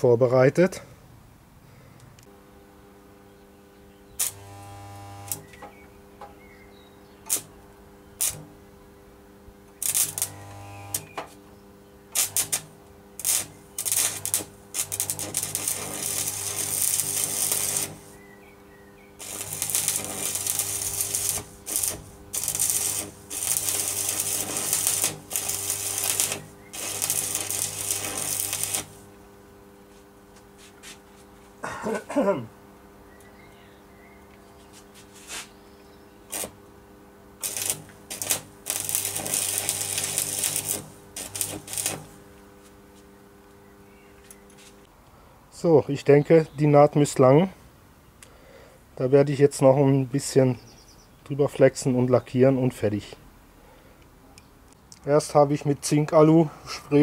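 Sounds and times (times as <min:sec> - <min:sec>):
low electrical hum: 0:00.0 - 0:57.0
welding arc crackling: 0:04.1 - 0:06.3, 0:07.2 - 0:11.4, 0:12.1 - 0:18.2, 0:19.1 - 0:29.4, 0:36.2 - 0:43.2.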